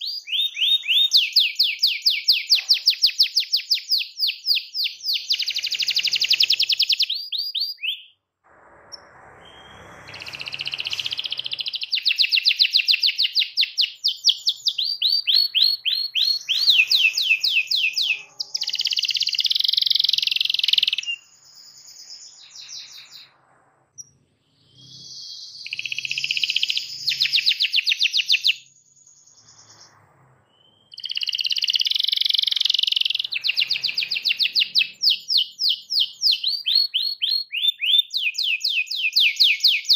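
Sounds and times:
canary singing trills: 0.0 - 8.2, 8.9 - 23.4, 24.0 - 39.9.

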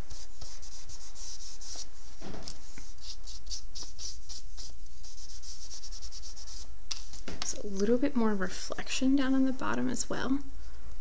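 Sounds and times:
charcoal scratching on paper: 0.0 - 7.1.

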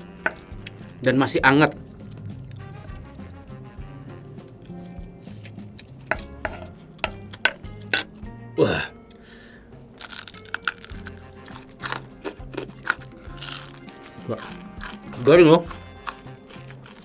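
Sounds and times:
background music: 0.0 - 17.0
crispy chicken crackling: 10.0 - 17.0.

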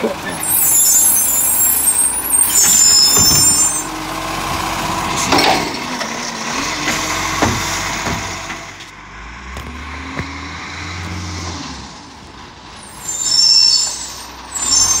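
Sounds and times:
truck engine and hydraulic arm: 0.0 - 15.0
air brakes hissing: 0.4 - 3.9, 12.8 - 15.0.

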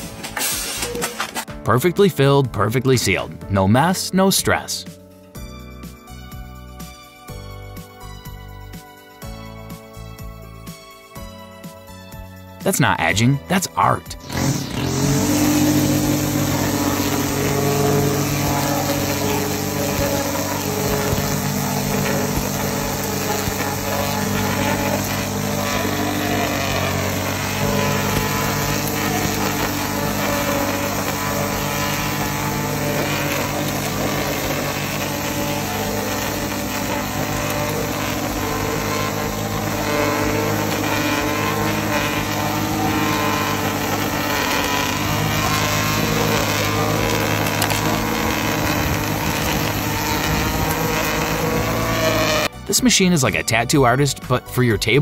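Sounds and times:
string trimmer running: 0.0 - 1.4, 12.7 - 52.8.

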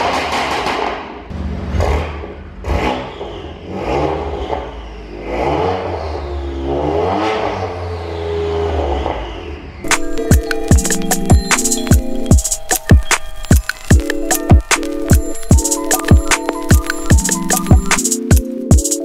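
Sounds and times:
car engine revving: 1.3 - 11.8
electronic music: 9.9 - 19.0.

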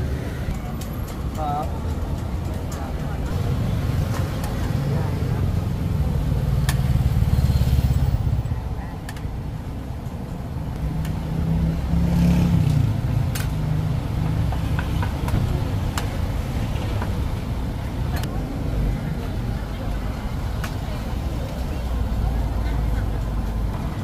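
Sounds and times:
motorbike engines passing: 0.0 - 8.9, 10.6 - 24.0.

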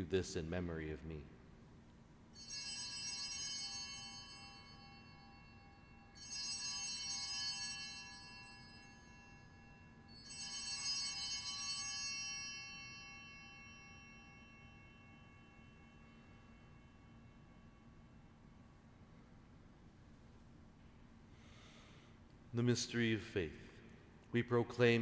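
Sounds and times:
altar bells ringing: 2.3 - 19.3.

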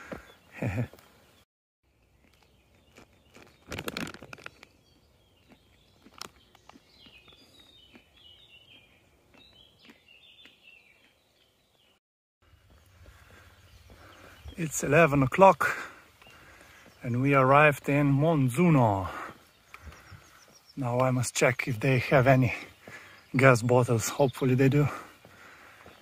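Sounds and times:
songbird singing: 0.0 - 26.0
plastic bag crinkling: 3.0 - 4.7.

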